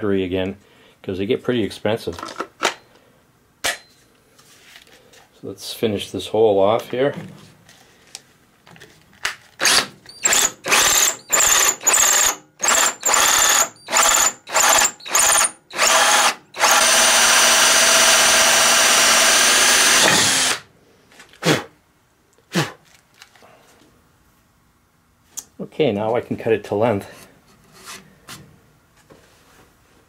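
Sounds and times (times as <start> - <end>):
cordless drill with hole saw: 9.6 - 20.7.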